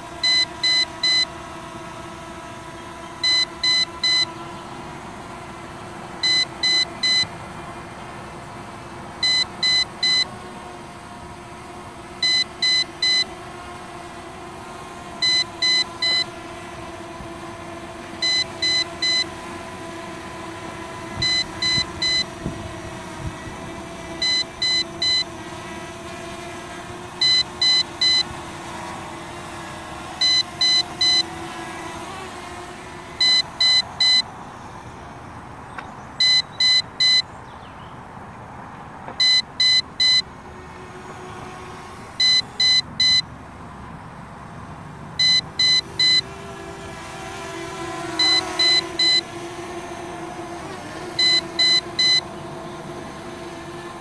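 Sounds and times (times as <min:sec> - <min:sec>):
quadcopter motors humming: 0:00.0 - 0:54.0
short high beeps: 0:00.2 - 0:01.3, 0:03.2 - 0:04.3, 0:06.2 - 0:07.3, 0:09.2 - 0:10.3, 0:12.2 - 0:13.3, 0:15.2 - 0:16.3, 0:18.2 - 0:19.3, 0:21.2 - 0:22.3, 0:24.2 - 0:25.3, 0:27.2 - 0:28.3, 0:30.2 - 0:31.3, 0:33.2 - 0:34.3, 0:36.2 - 0:37.3, 0:39.2 - 0:40.2, 0:42.2 - 0:43.3, 0:45.2 - 0:46.2, 0:48.2 - 0:49.3, 0:51.2 - 0:52.3.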